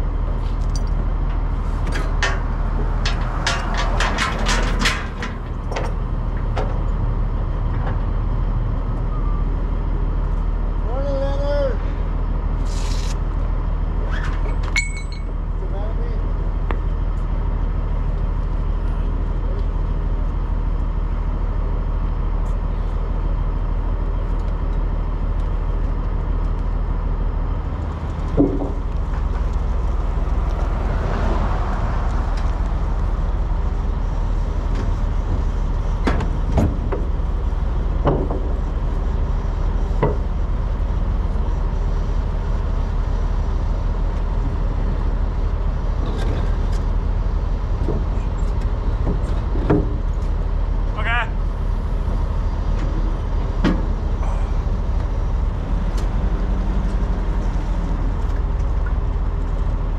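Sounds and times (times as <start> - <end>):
diesel truck engine running: 0.0 - 59.9
clunk: 0.7 - 7.0, 14.2 - 15.4, 28.3 - 29.5, 36.0 - 37.1.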